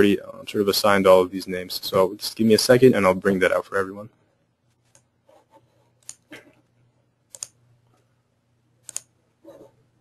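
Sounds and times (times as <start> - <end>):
mouse and keyboard clicks: 6.0 - 6.3, 7.3 - 7.6, 8.8 - 9.6.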